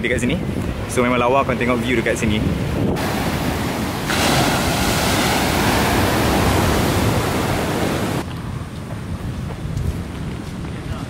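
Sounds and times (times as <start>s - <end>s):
waves breaking on shore: 1.7s - 8.2s.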